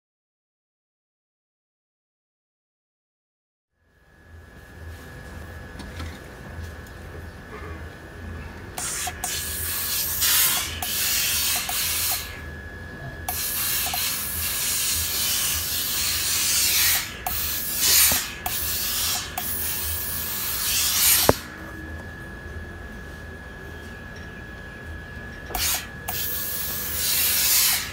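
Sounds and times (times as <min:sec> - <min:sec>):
steam iron hissing: 0:08.8 - 0:12.4, 0:13.3 - 0:21.4, 0:25.5 - 0:27.9
sharp click: 0:21.1 - 0:21.4.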